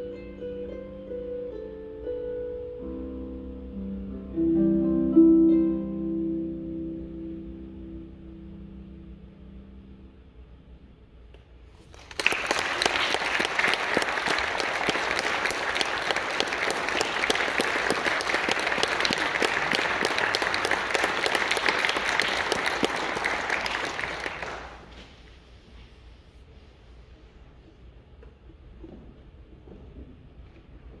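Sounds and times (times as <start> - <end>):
audience applauding: 11.9 - 25.0.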